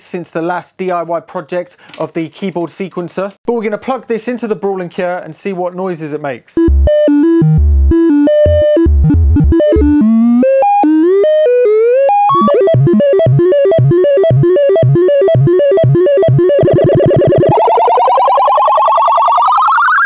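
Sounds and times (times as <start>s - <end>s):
oscillator electronic tones: 6.6s - 20.0s.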